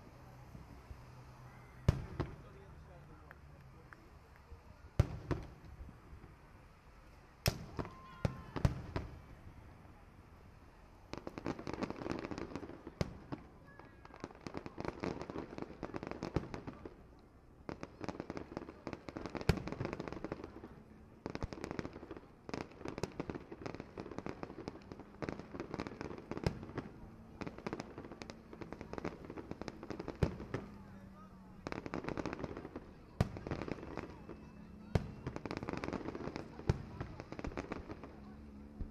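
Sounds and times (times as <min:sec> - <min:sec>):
fireworks crackling pops: 0:00.0 - 0:38.9
firework bang: 0:01.8 - 0:02.6.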